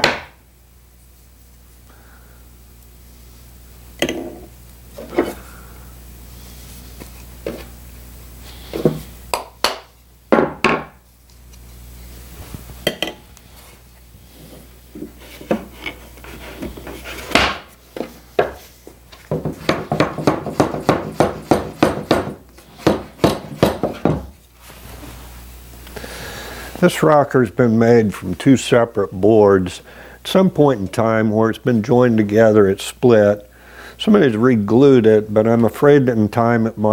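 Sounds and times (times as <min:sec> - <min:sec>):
wooden parts knocking on workbench: 0:08.7 - 0:11.0, 0:19.3 - 0:24.3.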